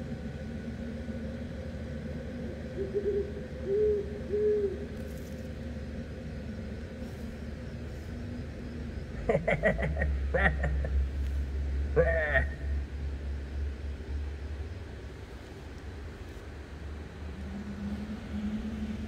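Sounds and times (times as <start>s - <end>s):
steady low hum: 0.0s - 19.0s
owl hooting: 2.3s - 5.1s.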